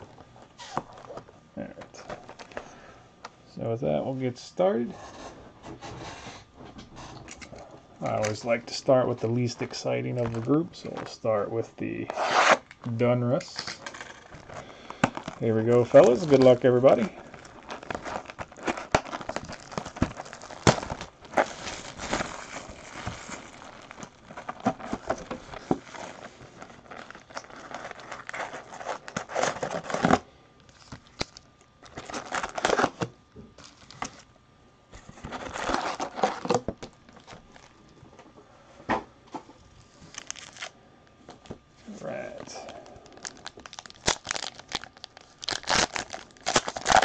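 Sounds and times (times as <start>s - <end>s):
plastic wrapping crinkling and tearing: 13.5s - 34.2s, 35.2s - 37.8s, 39.8s - 40.8s, 42.4s - 47.0s.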